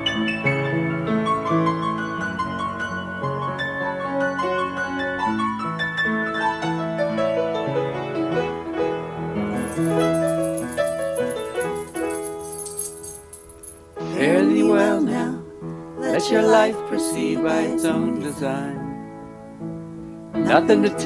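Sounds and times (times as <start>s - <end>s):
piano playing: 0.0s - 21.0s
high steady shimmer: 9.6s - 15.3s.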